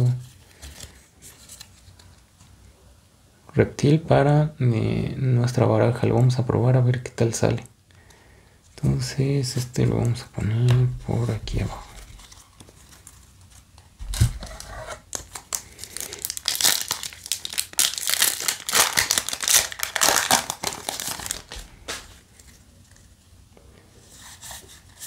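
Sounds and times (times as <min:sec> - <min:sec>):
quiet handling of wrapper: 0:00.1 - 0:02.7, 0:10.6 - 0:23.8
foil wrapper tearing and crinkling: 0:12.1 - 0:22.1.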